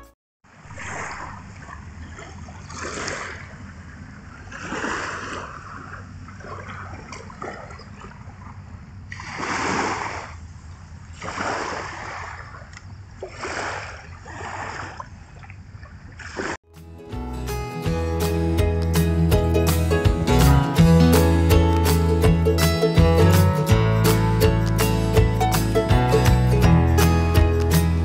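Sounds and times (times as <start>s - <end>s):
small waves lapping on shore: 0.5s - 16.6s.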